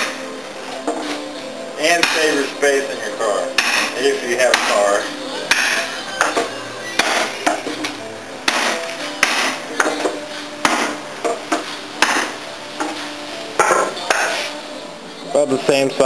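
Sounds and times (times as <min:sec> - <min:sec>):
hammer pounding wooden ram: 0:01.9 - 0:02.4, 0:03.6 - 0:04.9, 0:05.5 - 0:07.7, 0:08.4 - 0:13.0.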